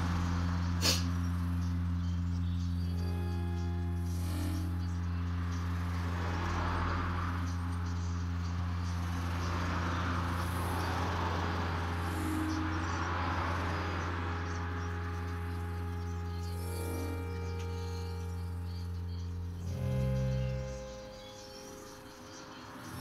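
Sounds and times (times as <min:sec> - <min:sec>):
low hum: 0:00.0 - 0:23.0
hiss: 0:00.8 - 0:01.2.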